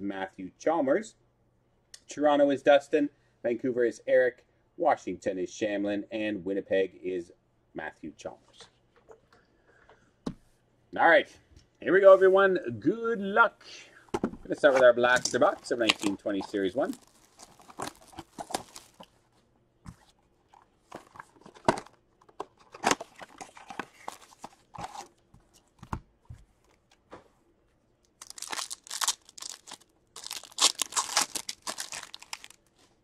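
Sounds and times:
cardboard box crackling and rustling: 0:14.6 - 0:19.1, 0:28.2 - 0:32.6
foil pack tearing and crinkling: 0:16.8 - 0:19.0, 0:28.2 - 0:32.7.

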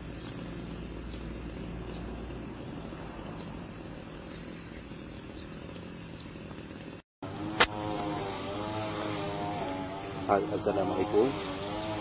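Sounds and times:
low engine-like hum: 0:00.0 - 0:07.8.

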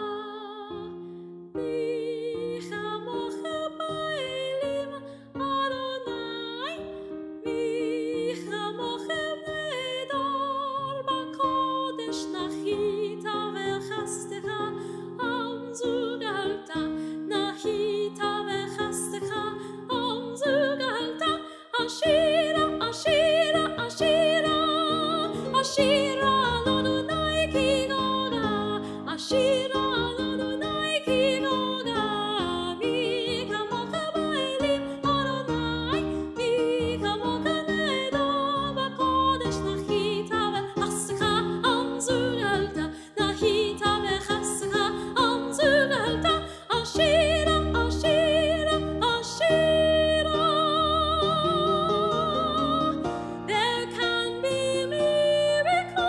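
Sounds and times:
piano accompaniment: 0:00.0 - 0:56.0
woman singing a ballad: 0:00.0 - 0:56.0.

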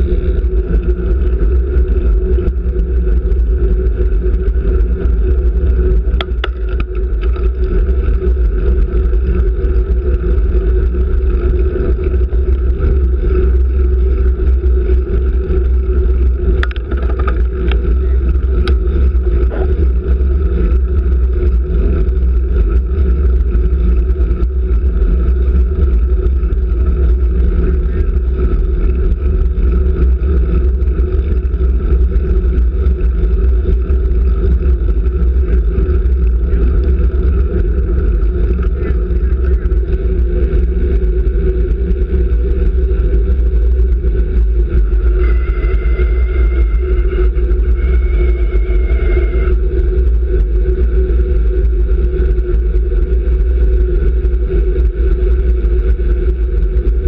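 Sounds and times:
wind rushing over microphone: 0:00.0 - 0:57.0
sharp clicks and knocks: 0:06.1 - 0:07.4, 0:16.6 - 0:17.8.

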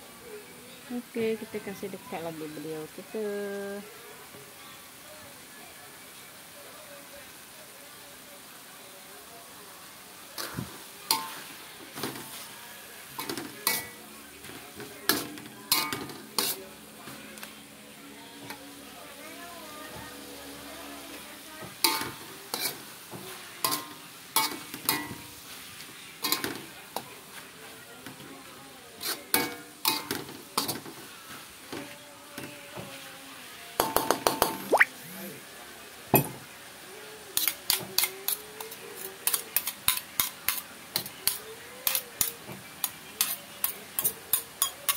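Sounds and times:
frying sizzle: 0:00.0 - 0:44.9
metal spatula scraping wok: 0:10.4 - 0:16.8, 0:21.8 - 0:26.5, 0:29.0 - 0:31.4, 0:37.4 - 0:42.3
metal spoon scraping a wok: 0:15.1 - 0:16.7, 0:21.8 - 0:22.9, 0:29.0 - 0:31.0, 0:37.4 - 0:44.9.

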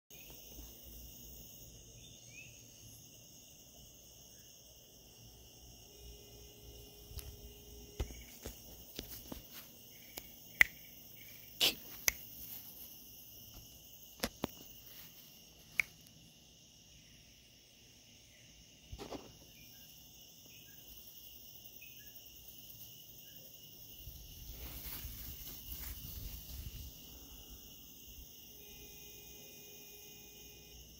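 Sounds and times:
crickets chirring: 0:00.1 - 0:30.9
rustling: 0:07.2 - 0:10.3, 0:24.2 - 0:27.0.

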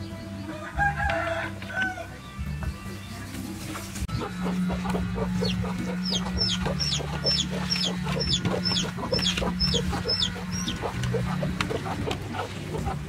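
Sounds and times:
chickens clucking: 0:00.0 - 0:13.0
high falling peeps: 0:04.2 - 0:12.4.

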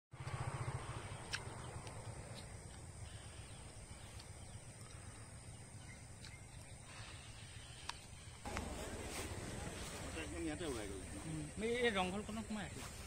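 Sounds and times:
faint bird calls: 0:00.2 - 0:10.1.

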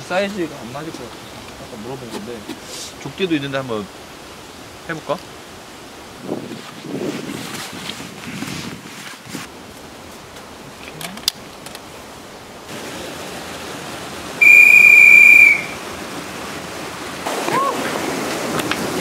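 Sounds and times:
rushing stream water: 0:00.0 - 0:19.0
loud whistle blown: 0:14.4 - 0:15.8.

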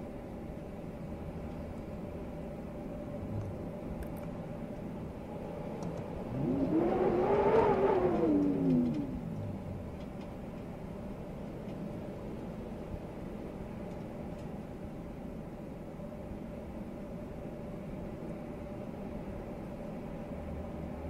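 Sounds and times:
blizzard wind: 0:00.0 - 0:21.0
faint low hum: 0:00.0 - 0:21.0
vehicle engine passing: 0:06.1 - 0:10.5.

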